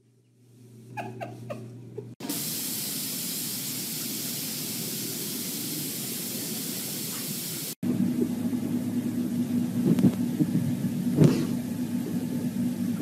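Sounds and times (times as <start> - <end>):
water spraying hiss: 2.2 - 7.8.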